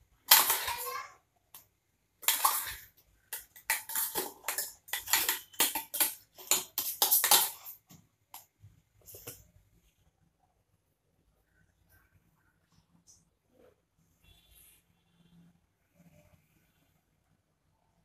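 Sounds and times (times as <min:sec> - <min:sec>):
metal spoon scraping steel bowl: 0:02.2 - 0:07.8.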